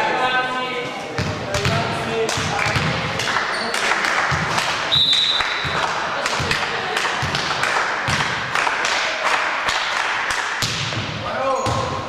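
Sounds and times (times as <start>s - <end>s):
crowd chatter: 0.0s - 12.0s
basketball bouncing on gym floor: 1.2s - 3.1s, 4.3s - 4.6s, 5.6s - 6.6s, 7.2s - 8.4s, 10.6s - 12.0s
whistle blown: 4.9s - 5.6s.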